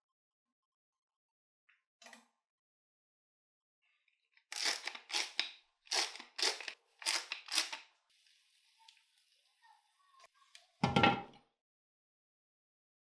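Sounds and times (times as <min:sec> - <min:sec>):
salt mill grinding: 0:04.5 - 0:07.8
batter sizzling in pan: 0:08.0 - 0:10.2.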